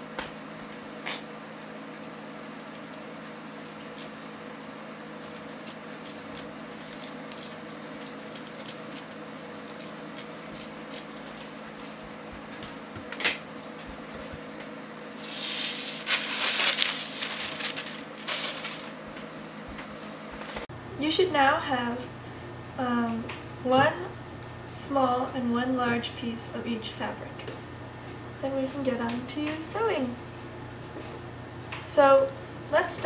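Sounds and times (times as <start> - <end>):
steady low hum: 0.0 - 33.0
rustle of paper and fabric: 4.8 - 12.2, 15.2 - 20.7.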